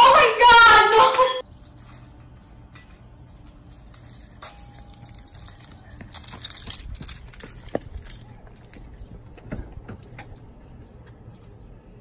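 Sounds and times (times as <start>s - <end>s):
low outdoor rumble: 1.4s - 12.0s
running footsteps on concrete: 5.1s - 11.6s.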